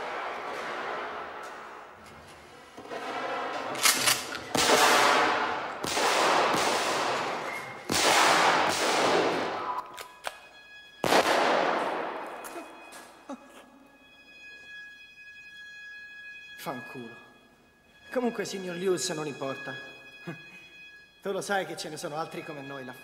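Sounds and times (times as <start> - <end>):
gunshots echoing in a hall: 0.0 - 1.9, 3.0 - 13.2.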